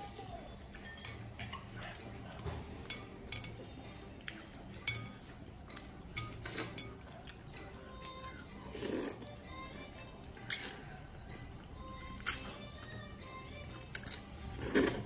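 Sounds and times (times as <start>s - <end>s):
slurping noodles: 8.7s - 9.3s, 14.0s - 15.0s.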